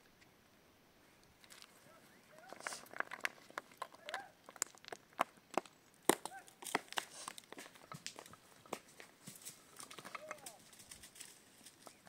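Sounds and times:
footsteps on rock and stones: 1.4s - 12.0s
firewood bundle clacking: 2.4s - 12.0s.

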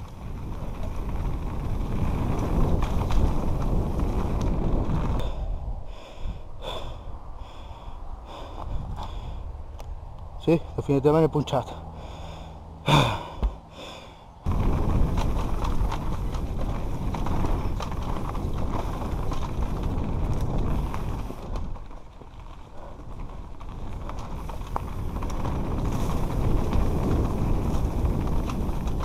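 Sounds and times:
tyres rumbling over dirt: 0.0s - 5.4s, 12.0s - 29.0s
bike rattling and clicking: 0.0s - 5.5s, 14.4s - 29.0s
wind on microphone: 0.0s - 10.4s, 14.4s - 29.0s.

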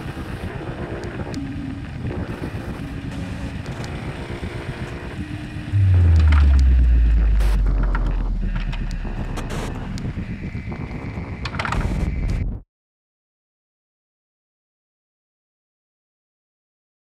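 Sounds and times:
crackling static noise: 0.0s - 12.5s
deep bass hit: 5.7s - 10.3s
short glitch clicks: 5.8s - 10.2s.

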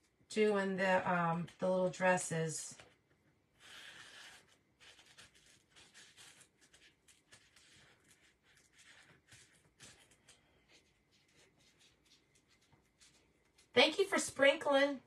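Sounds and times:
fingers rubbing and scratching: 3.6s - 13.7s.

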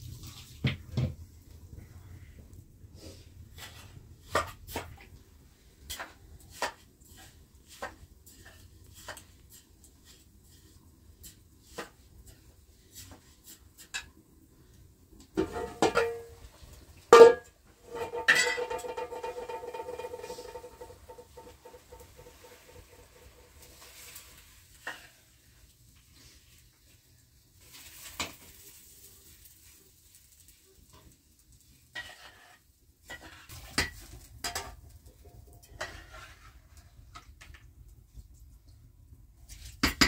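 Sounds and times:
metal pots clattering: 15.3s - 23.7s, 31.9s - 37.7s
metal cookware clinking: 15.4s - 22.5s.

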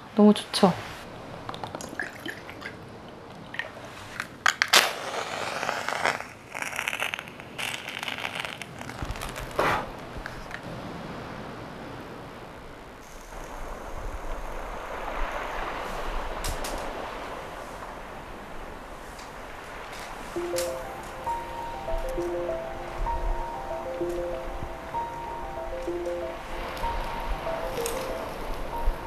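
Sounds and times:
liquid pouring: 1.8s - 3.9s.

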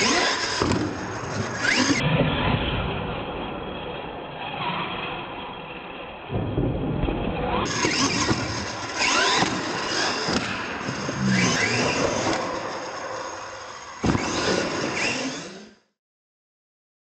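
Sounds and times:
toy truck motor whining: 0.0s - 2.0s, 7.7s - 15.8s.

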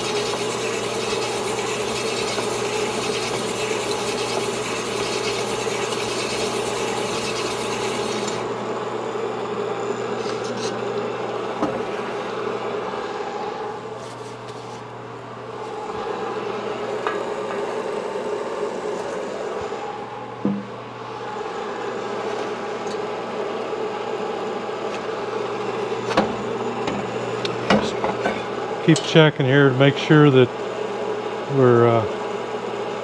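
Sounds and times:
honing stones rasping in cylinder: 0.0s - 8.4s
machine humming: 0.0s - 33.0s.

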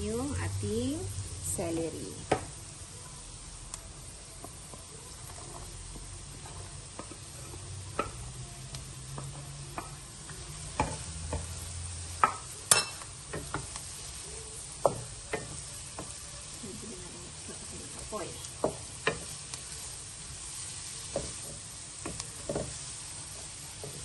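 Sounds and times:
vegetables sizzling in butter: 0.0s - 24.0s
wooden spatula knocking against pan: 7.9s - 8.2s, 9.1s - 11.6s, 12.2s - 13.7s, 14.8s - 16.2s, 18.6s - 19.3s, 21.1s - 22.8s.

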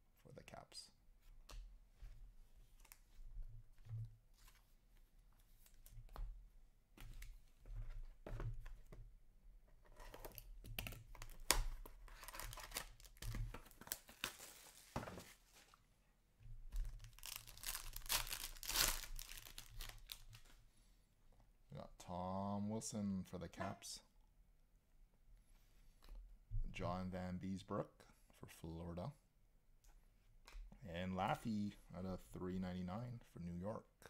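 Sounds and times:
foil wrapper tearing and crinkling: 12.1s - 14.9s, 16.9s - 20.4s.

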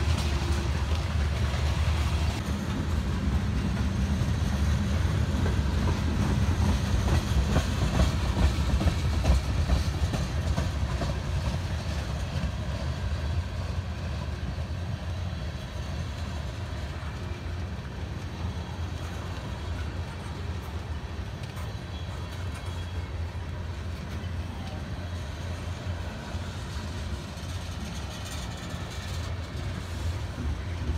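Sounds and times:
freight train rumble: 0.0s - 30.9s
wheels clicking over rail joints: 0.0s - 30.9s.

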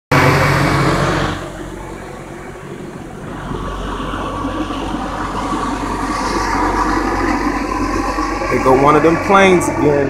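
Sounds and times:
helicopter drone: 0.1s - 10.0s.

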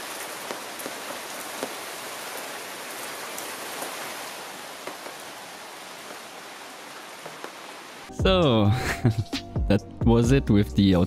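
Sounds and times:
rain hissing: 0.0s - 8.1s.

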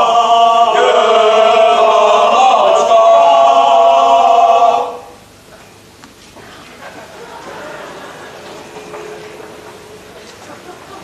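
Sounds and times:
male voices singing a chord: 0.0s - 5.2s.

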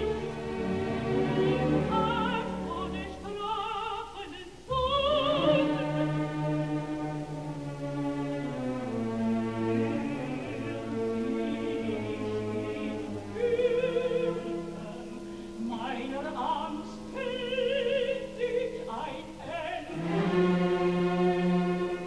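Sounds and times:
orchestra playing: 0.0s - 3.2s, 5.1s - 16.6s, 19.7s - 22.0s
woman singing operatically: 1.4s - 6.0s, 10.0s - 20.0s.

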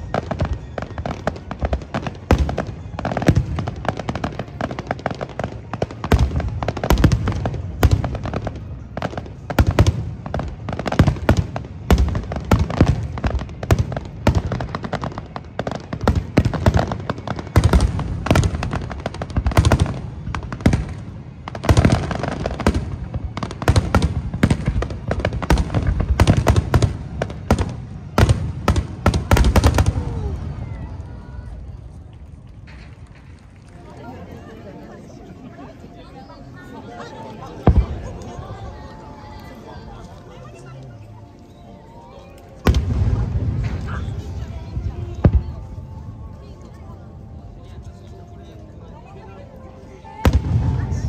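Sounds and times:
fireworks bursting: 0.0s - 31.1s, 37.6s - 38.4s, 42.6s - 45.8s.

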